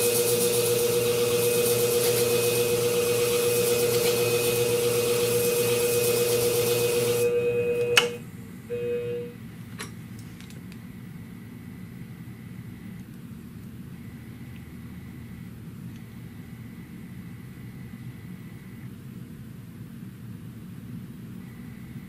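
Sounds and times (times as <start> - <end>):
blade hissing on abrasive disc: 0.0 - 7.4
sharpening machine humming: 0.0 - 9.3.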